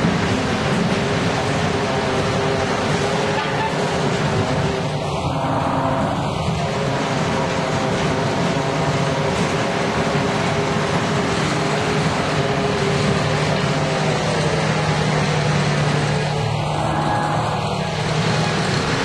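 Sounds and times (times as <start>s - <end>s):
train wheels rumbling on rail: 0.0s - 19.0s
low hum: 4.3s - 19.0s.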